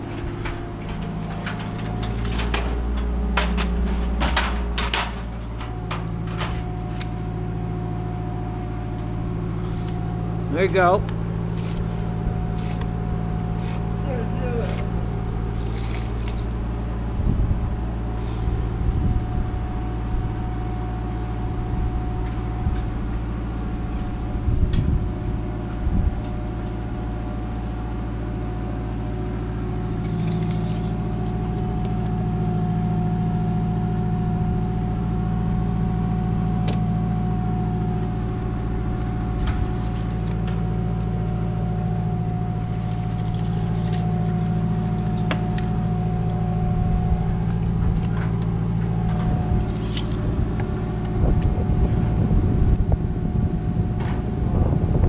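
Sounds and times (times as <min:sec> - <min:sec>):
machine humming: 0:00.0 - 0:55.0.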